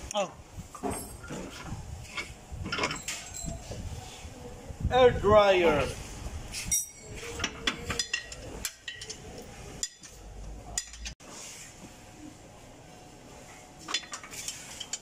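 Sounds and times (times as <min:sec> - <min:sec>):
metallic tool clinks: 0:06.7 - 0:07.2.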